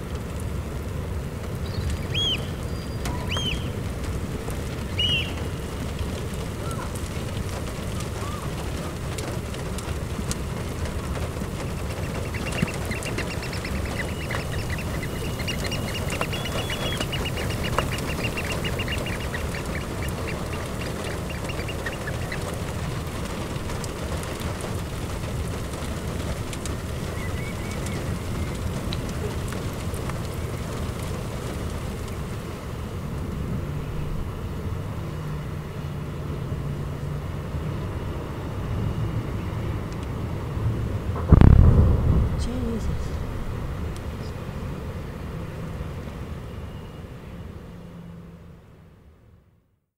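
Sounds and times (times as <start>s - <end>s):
steady low rumble: 0.0s - 46.3s
birds piping shrill notes: 1.7s - 3.8s, 5.0s - 5.4s, 11.2s - 23.2s, 27.0s - 28.7s.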